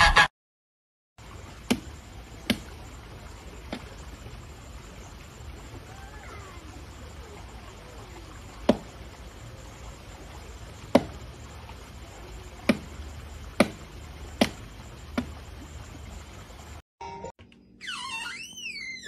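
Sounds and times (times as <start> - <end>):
sharp knocks: 13.6 - 14.6.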